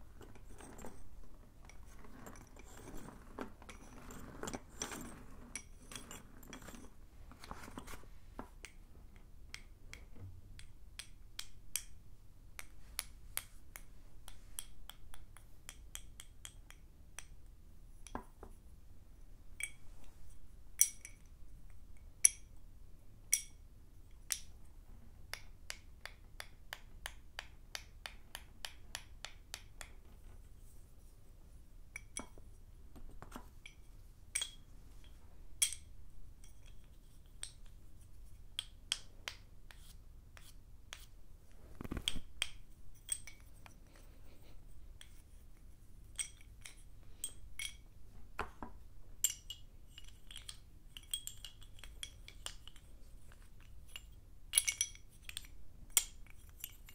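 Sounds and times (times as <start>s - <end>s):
chalk sticks clinking: 0.0s - 8.0s, 33.2s - 41.1s, 41.9s - 48.6s, 49.2s - 56.9s.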